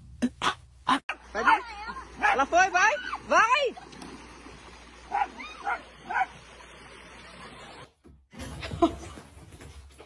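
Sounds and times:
dog barking: 2.2s - 2.5s, 5.1s - 6.4s.

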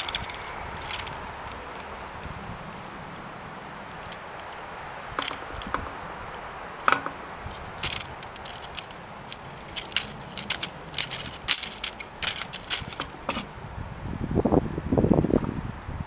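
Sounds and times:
pinwheel clicking and rattling: 0.0s - 1.2s, 9.6s - 13.2s.

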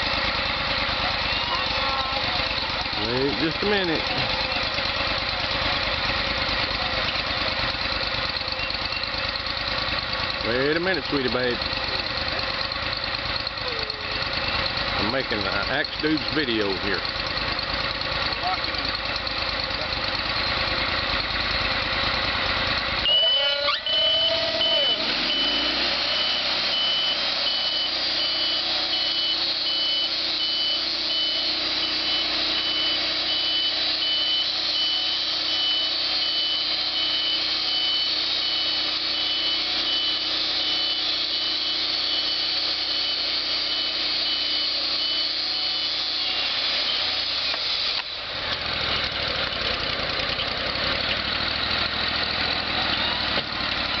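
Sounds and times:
sawmill engine humming: 0.0s - 54.0s
band blade high whine: 23.0s - 49.2s.

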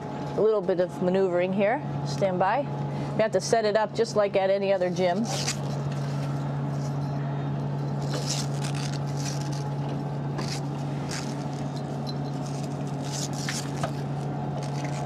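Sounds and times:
ventilation hum: 0.0s - 15.0s
equipment clicks and rustles: 7.8s - 15.0s.

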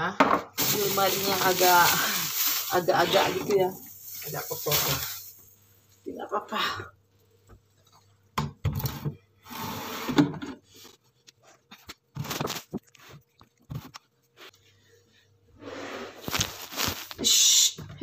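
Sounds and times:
jars scraping on a shelf: 8.9s - 10.6s.

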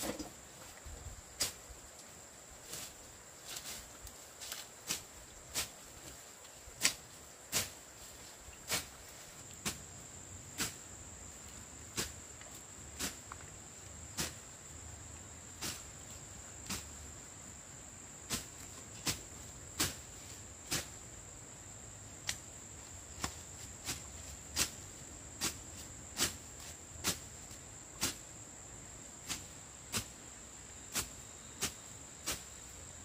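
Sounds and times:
insects droning: 0.0s - 33.0s.

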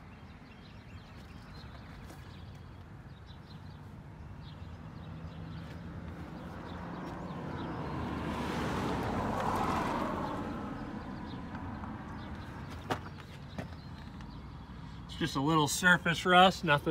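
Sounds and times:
footsteps on gravel: 1.1s - 2.8s, 12.2s - 14.3s
vehicle passing by: 4.4s - 13.0s.

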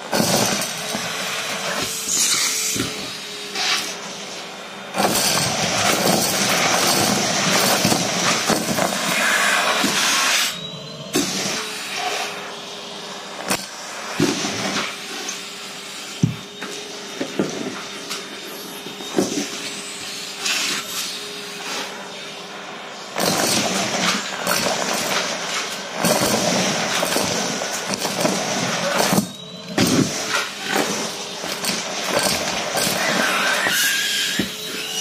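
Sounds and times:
vacuum cleaner running: 0.0s - 35.0s
small pieces rattling up metal tube: 26.0s - 33.8s.

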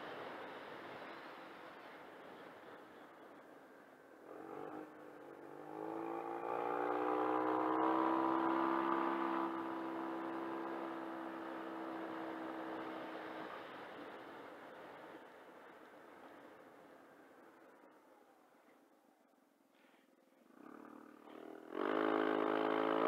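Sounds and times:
scooter engine accelerating: 4.2s - 14.3s, 20.4s - 23.0s.

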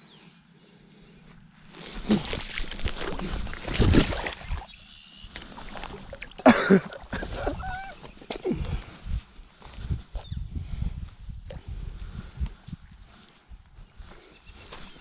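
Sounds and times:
water sloshing and splashing: 1.7s - 8.0s.

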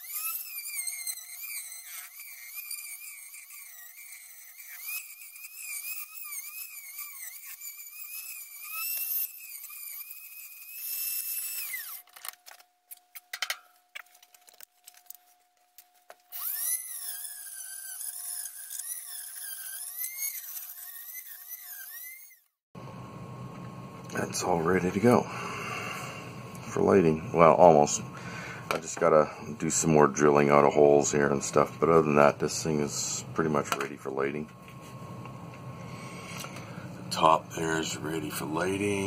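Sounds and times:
rotary tool whining: 0.0s - 22.6s, 24.4s - 39.0s.

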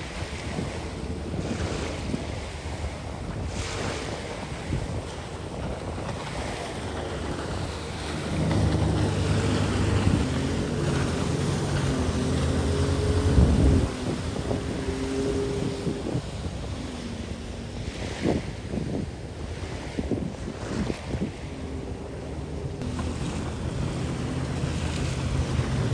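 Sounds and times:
watercraft engine running: 0.0s - 25.9s
wind buffeting microphone: 0.0s - 25.9s.

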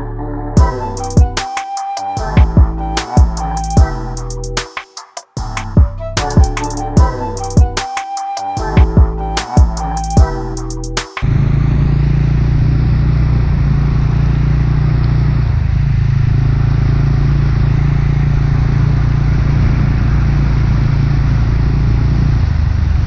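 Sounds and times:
dirt bike engine running: 11.2s - 23.0s.

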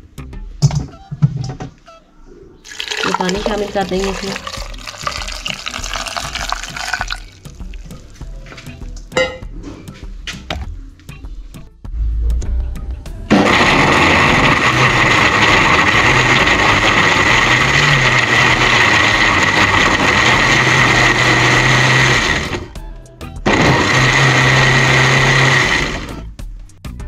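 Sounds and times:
electric blender running: 2.7s - 7.2s, 13.3s - 22.7s, 23.5s - 26.2s.

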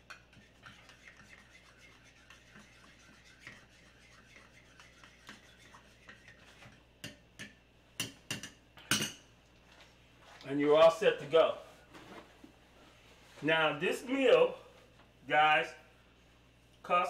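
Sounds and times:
spoon stirring in ceramic bowl: 0.0s - 9.2s.

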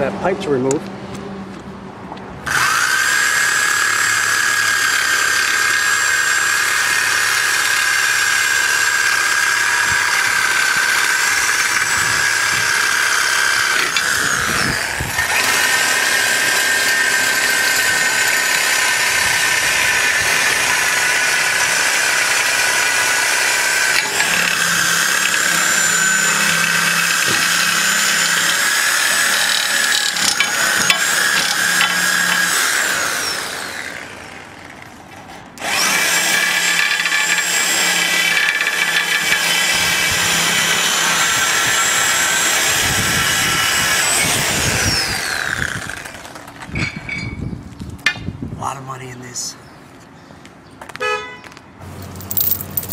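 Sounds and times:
power tool cutting steel pipe: 2.5s - 34.9s, 35.6s - 46.4s.

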